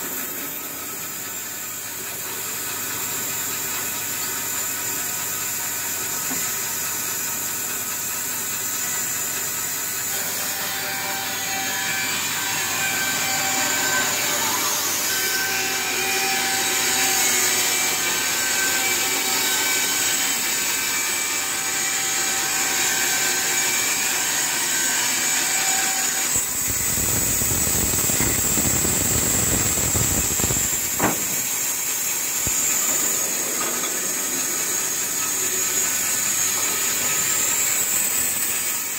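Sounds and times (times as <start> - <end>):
band saw cutting through log: 0.0 - 38.9
sharp knock: 30.9 - 31.5.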